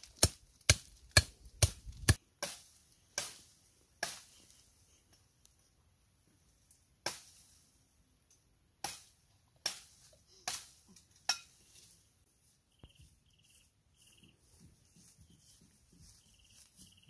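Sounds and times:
blade chopping branches: 0.0 - 4.4, 8.8 - 11.4.

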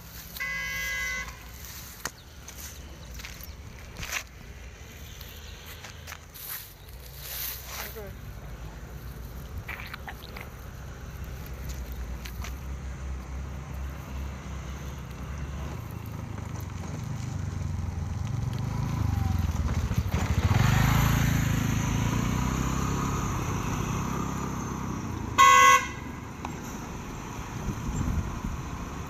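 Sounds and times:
vehicle engine rumble passing: 0.0 - 29.0
car horn toot: 0.4 - 1.6, 25.4 - 26.2.

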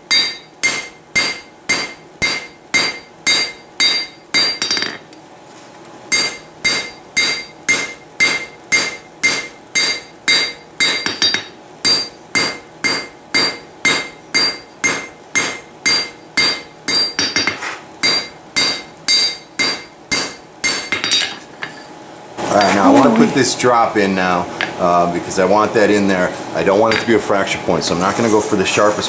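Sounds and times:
hammer blows ringing on anvil: 0.0 - 5.0, 6.1 - 21.4.

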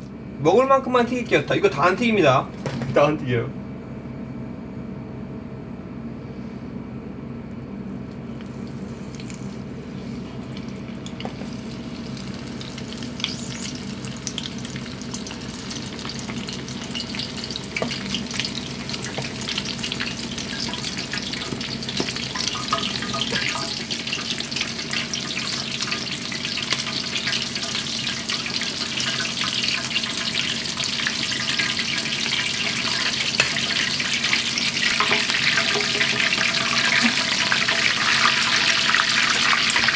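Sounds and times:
oil crackling while deep-frying: 8.2 - 39.9.

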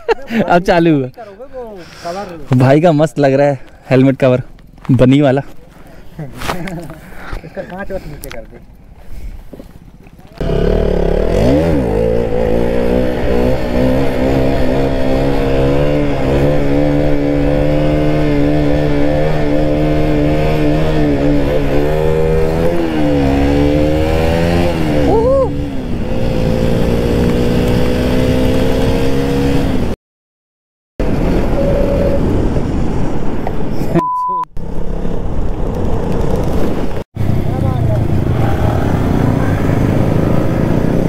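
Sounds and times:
motorcycle engine revving: 9.8 - 30.0, 34.8 - 41.0.

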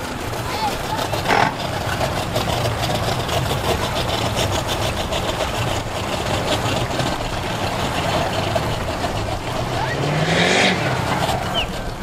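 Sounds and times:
boat engines idling: 0.0 - 12.0.

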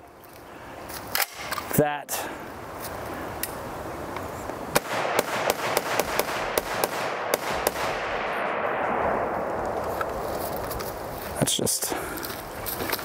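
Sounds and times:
rifle gunshots: 4.7 - 10.1.

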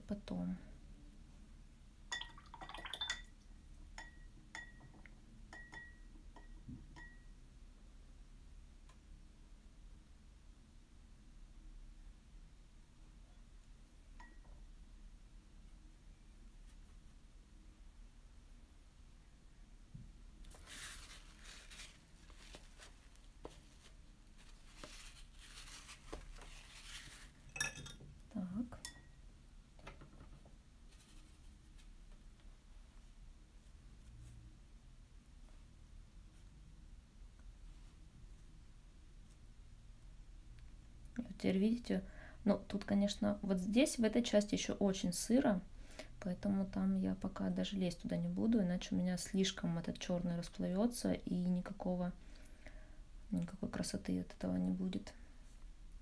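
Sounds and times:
brush clinking against glass jar: 2.1 - 3.4, 4.0 - 7.3, 27.5 - 28.0, 28.8 - 29.2
paper towel rustling: 20.4 - 27.5.

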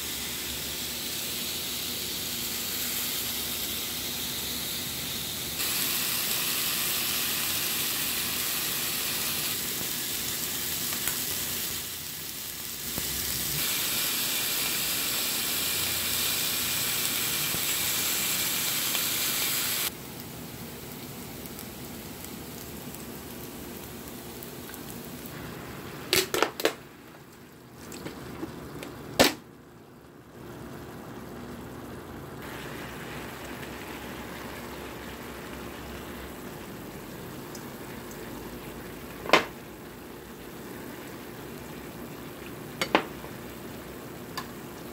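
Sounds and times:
steak sizzling on grill pan: 0.0 - 25.4.

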